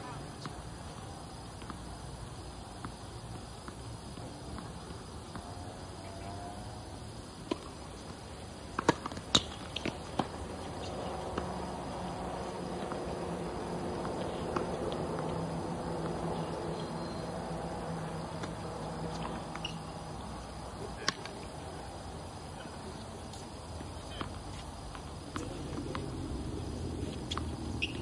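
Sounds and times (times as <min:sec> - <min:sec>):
outdoor background noise: 0:00.0 - 0:28.0
tennis balls hitting hard court: 0:07.4 - 0:28.0.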